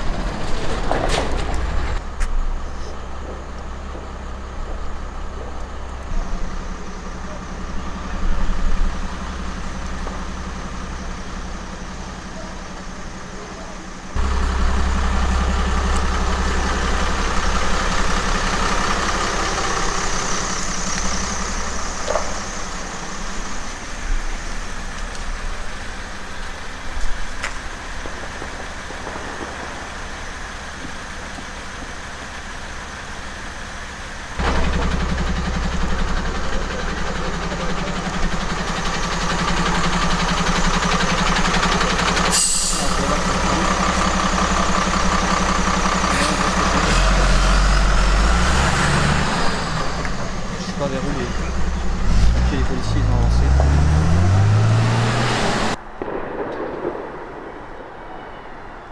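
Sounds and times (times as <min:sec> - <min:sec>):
diesel engine idling: 0:00.0 - 0:57.6
sharp crack: 0:20.3 - 0:32.4, 0:49.0 - 0:58.9.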